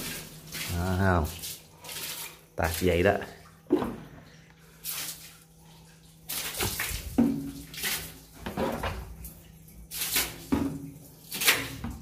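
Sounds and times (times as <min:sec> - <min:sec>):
liquid splashing: 0:00.0 - 0:12.0.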